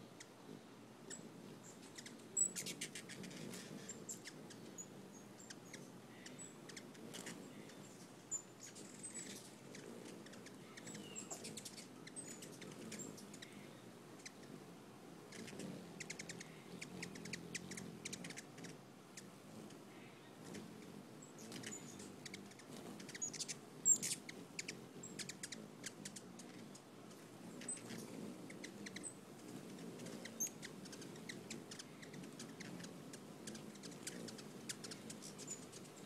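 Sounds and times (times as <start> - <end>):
hummingbird chirps: 0.0 - 36.0
hummingbird chattering chips: 1.1 - 14.6, 15.3 - 36.0.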